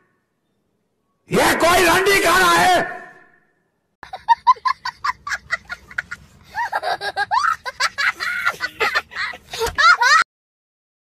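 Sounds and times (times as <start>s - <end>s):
young child laughing: 4.0s - 10.3s.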